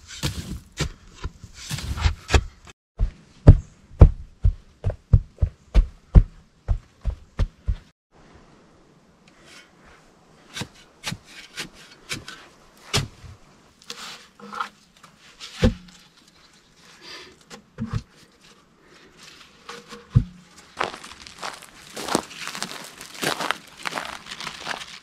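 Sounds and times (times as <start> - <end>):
heavy low thuds: 3.0 - 7.9.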